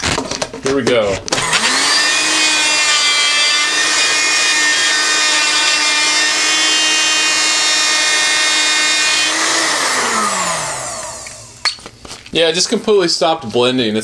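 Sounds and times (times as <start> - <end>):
blender motor whining: 1.3 - 11.6.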